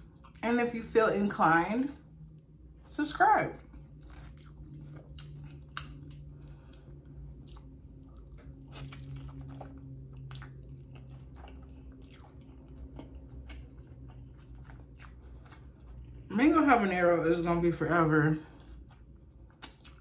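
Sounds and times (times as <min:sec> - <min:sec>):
wet chewing and biting: 0:03.6 - 0:16.3, 0:18.5 - 0:20.0.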